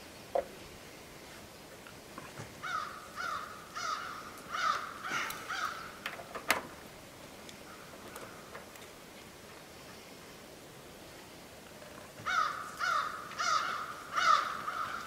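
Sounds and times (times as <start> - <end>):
crow cawing: 2.6 - 5.9, 12.2 - 15.0.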